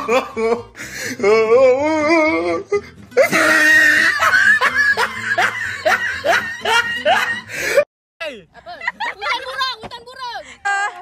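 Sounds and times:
music: 0.0s - 7.8s
laughter: 3.2s - 7.8s, 8.5s - 9.7s.

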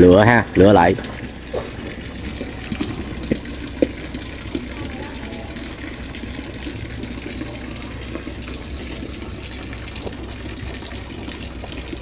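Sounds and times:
low steady hum: 0.0s - 12.0s
water running and splashing: 0.0s - 12.0s.

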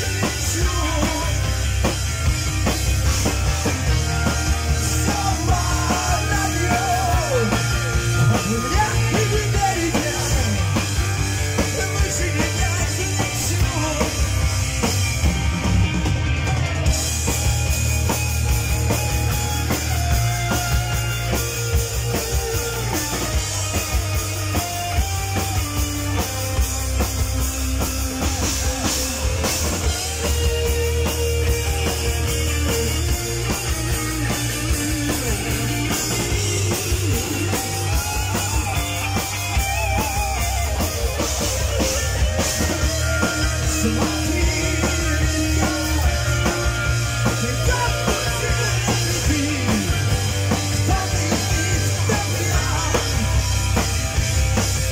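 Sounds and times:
bass guitar: 0.0s - 54.9s
drum kit: 0.0s - 54.9s
electric guitars: 0.0s - 54.9s
person singing: 4.8s - 10.7s, 42.6s - 53.6s.

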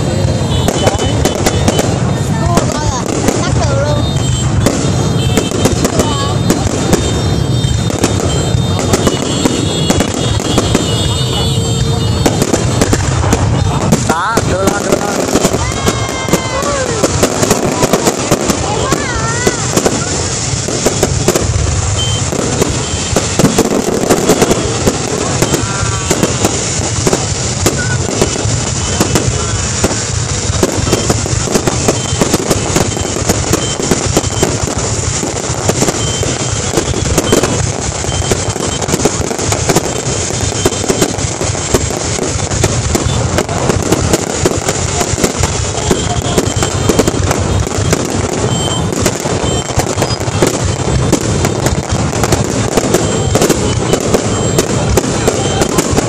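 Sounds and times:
fireworks crackling and popping: 0.0s - 56.0s.

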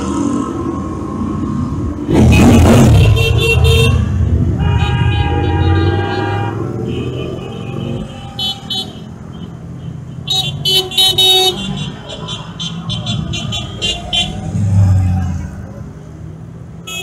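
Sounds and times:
horns tooting: 2.1s - 15.4s.

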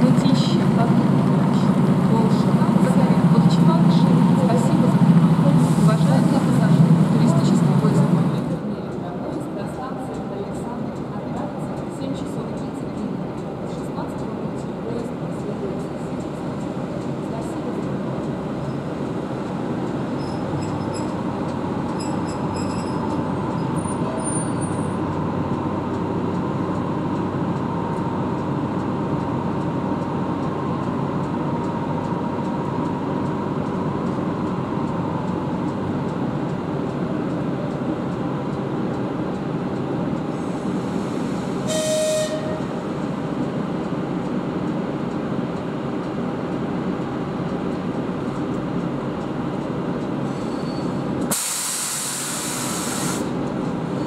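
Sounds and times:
electric locomotive rumbling: 0.0s - 54.0s
locomotive horn blast: 41.6s - 42.8s.

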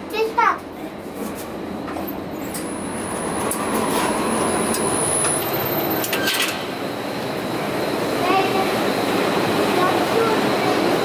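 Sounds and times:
subway train rumble: 0.0s - 11.0s
thin high whine: 1.8s - 11.0s
elevator doors clicking: 4.6s - 6.7s.

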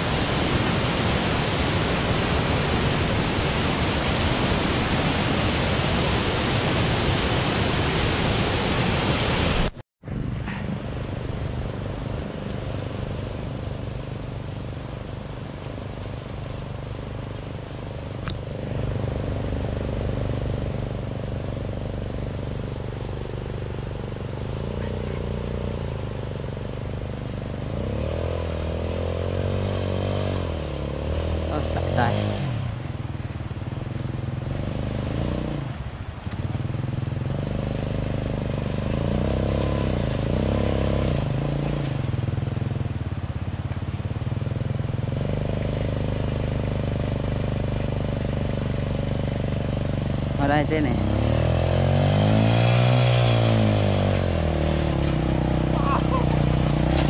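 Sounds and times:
waterfall rushing into pool: 0.0s - 9.8s, 55.6s - 57.0s
motorcycle engine running: 10.0s - 57.0s.

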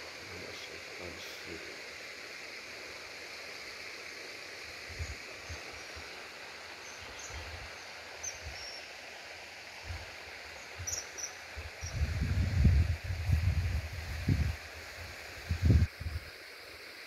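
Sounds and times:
steady hiss: 0.0s - 17.0s
faint bird chirps: 10.6s - 12.0s.

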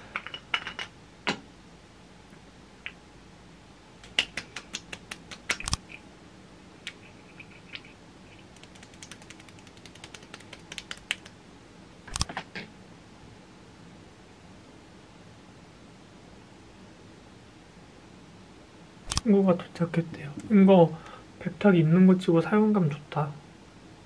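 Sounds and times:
fingertips tapping skin: 4.0s - 6.0s, 6.9s - 11.4s
single clicks: 5.5s - 5.9s.

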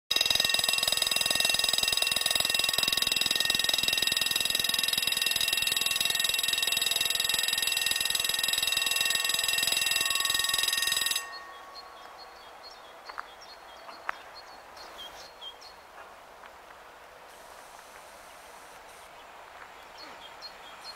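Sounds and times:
level-crossing warning bell ringing: 0.1s - 12.8s.

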